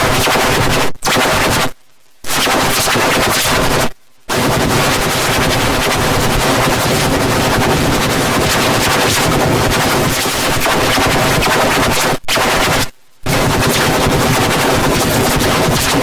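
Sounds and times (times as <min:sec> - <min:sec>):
loud harsh distorted noise: 0:00.0 - 0:16.0.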